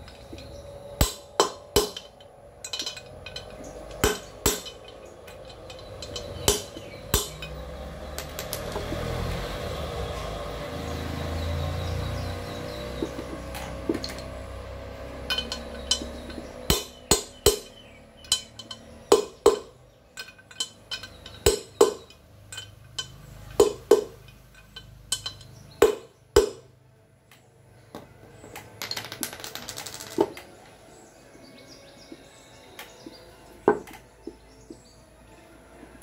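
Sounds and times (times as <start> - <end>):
metal casing ringing: 0.0 - 8.9, 12.5 - 26.7
mallet knocking on metal: 1.0 - 2.1, 4.0 - 4.9, 6.0 - 7.6, 15.3 - 17.8, 21.4 - 22.1, 25.8 - 26.7.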